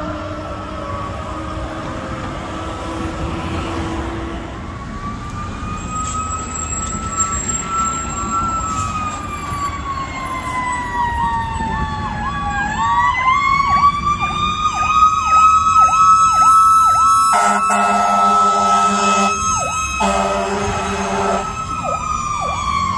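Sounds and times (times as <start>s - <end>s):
wailing siren: 0.0s - 22.9s
yelping siren: 4.6s - 22.9s
loud horn blast: 17.3s - 21.6s.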